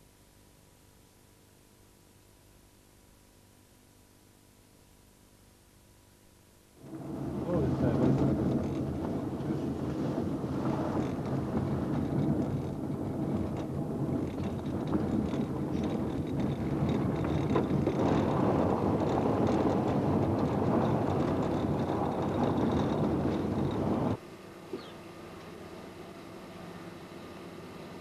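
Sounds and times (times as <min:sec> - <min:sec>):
tyres rumbling on dirt road: 0:06.8 - 0:24.2
car engine hum: 0:06.8 - 0:28.0.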